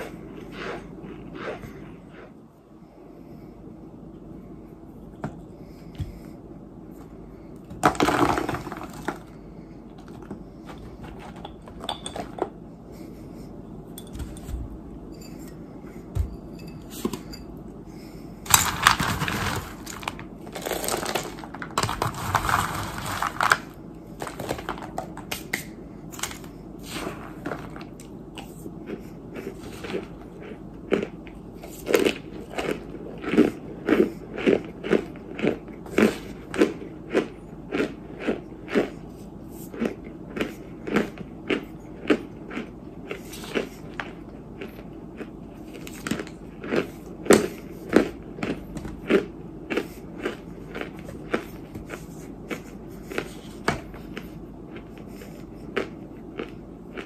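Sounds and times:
crunchy chewing: 0.0 - 2.4, 26.3 - 57.0
chalky chunks crushing: 7.7 - 12.4, 18.5 - 39.0.

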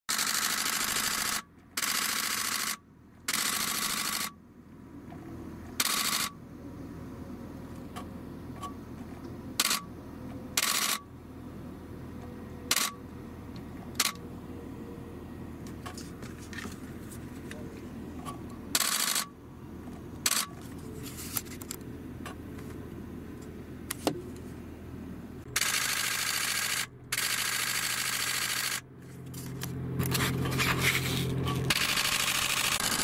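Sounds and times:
camera shutter bursts: 0.1 - 4.4, 5.8 - 6.4, 9.6 - 9.8, 10.6 - 11.0, 12.7 - 13.0, 14.0 - 14.2, 18.8 - 19.3, 20.3 - 20.5, 25.6 - 28.8, 31.7 - 33.0.

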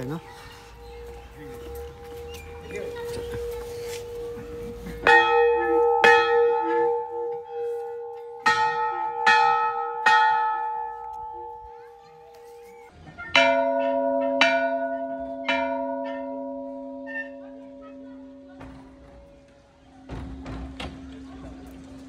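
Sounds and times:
large brass temple bell ringing: 0.0 - 12.3, 13.4 - 19.4
lower-pitched brass bell struck: 0.7 - 12.0.

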